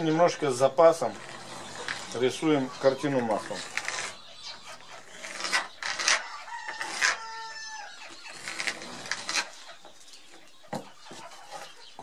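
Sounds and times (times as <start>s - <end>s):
pencil scratching: 1.0s - 2.4s, 3.3s - 7.4s, 8.1s - 9.6s
rooster crowing: 6.2s - 8.0s.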